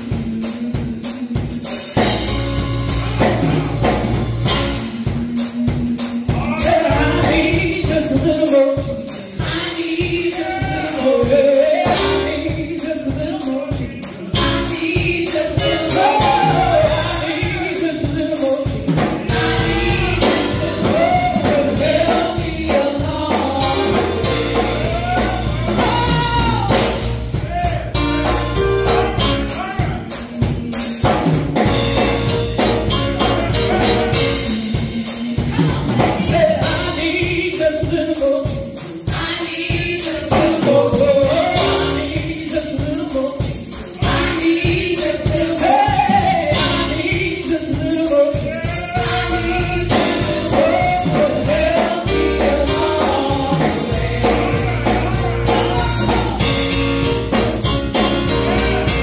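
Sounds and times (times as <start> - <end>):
choir singing gospel in harmony: 0.0 - 59.0
drum kit: 0.0 - 59.0
keyboard: 0.0 - 59.0
organ: 47.6 - 59.0.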